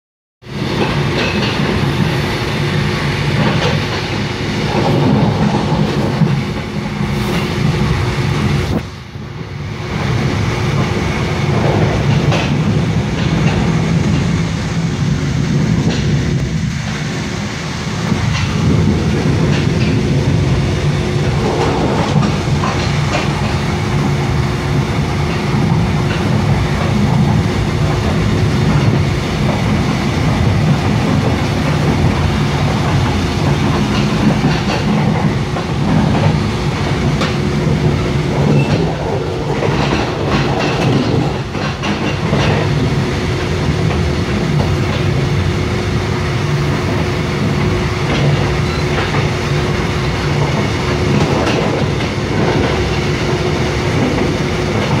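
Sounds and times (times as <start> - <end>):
train wheels rumbling on rail: 0.4 - 55.0
clicks over rail joints: 25.3 - 42.8.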